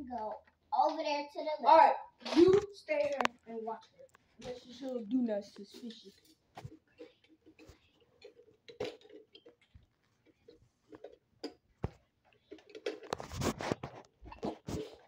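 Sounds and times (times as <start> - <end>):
rustling: 9.1 - 15.0.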